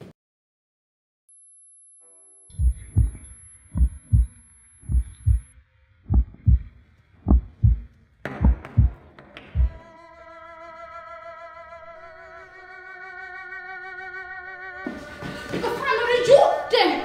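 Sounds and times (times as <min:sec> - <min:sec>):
heartbeat thumps: 0:02.5 - 0:09.0, 0:09.6 - 0:09.8.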